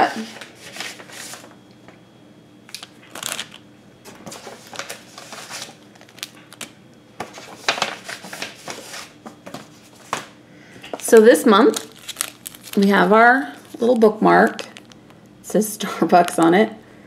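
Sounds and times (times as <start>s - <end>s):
paper envelope crinkling: 0.2s - 1.6s, 2.7s - 10.3s, 10.9s - 15.2s
plastic packets crinkling: 2.7s - 9.2s, 10.9s - 15.3s, 16.0s - 16.6s.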